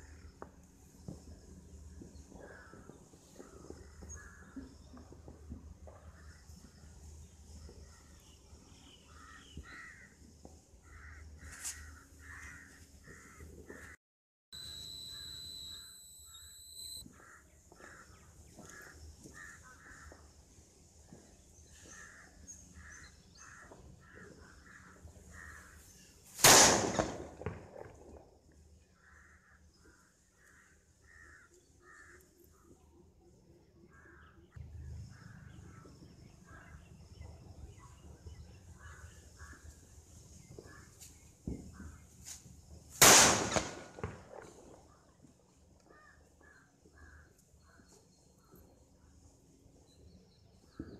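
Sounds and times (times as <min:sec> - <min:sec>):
crows cawing: 0:09.2 - 0:10.2, 0:10.8 - 0:14.0, 0:17.1 - 0:20.2, 0:22.8 - 0:25.8, 0:45.9 - 0:47.3
steady high beep: 0:14.5 - 0:17.0
firecracker bang: 0:26.4 - 0:27.7, 0:43.0 - 0:44.5.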